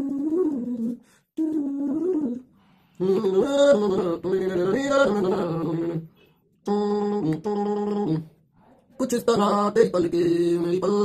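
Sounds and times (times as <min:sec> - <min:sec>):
person humming: 0:00.0 - 0:08.4
song with singing: 0:00.0 - 0:11.0.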